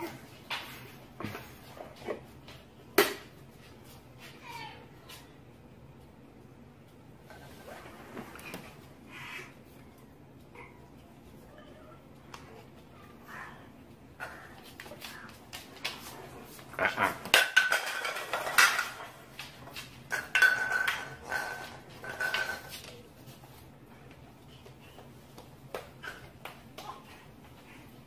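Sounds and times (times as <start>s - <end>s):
hard objects clattering and knocking: 16.8s - 23.0s.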